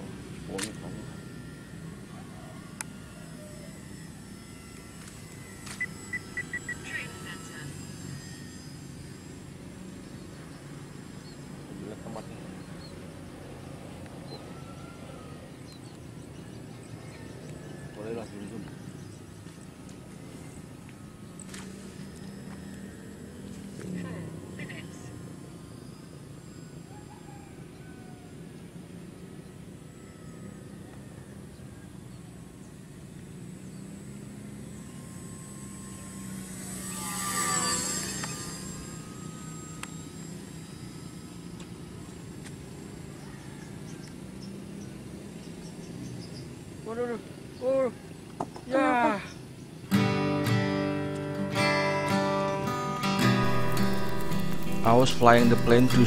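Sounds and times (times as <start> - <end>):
model plane motor droning: 0.0 - 56.0
bird chirps: 5.8 - 7.0.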